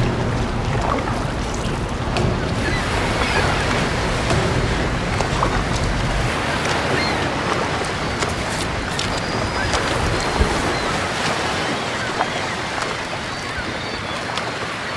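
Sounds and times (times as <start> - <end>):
faint clicks: 0.0 - 11.4
wind buffeting microphone: 0.0 - 14.4
sea surf washing: 0.0 - 14.9.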